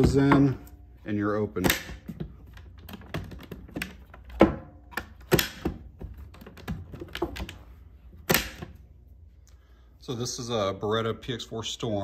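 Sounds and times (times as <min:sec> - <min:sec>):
clicks and knocks of plastic box: 0:01.6 - 0:07.6.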